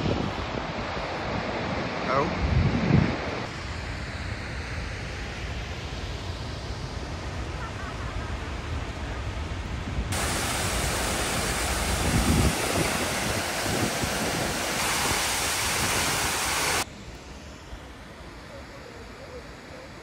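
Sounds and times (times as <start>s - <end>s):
wind rumble on microphone: 0.0s - 16.8s
waterfall rushing: 10.1s - 16.8s.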